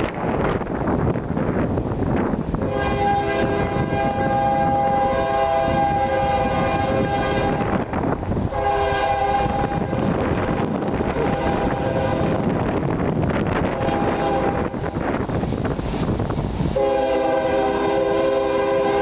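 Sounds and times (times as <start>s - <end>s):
wind buffeting microphone: 0.0s - 19.0s
train air horn blasts: 2.6s - 12.5s, 13.6s - 14.9s, 16.7s - 19.0s.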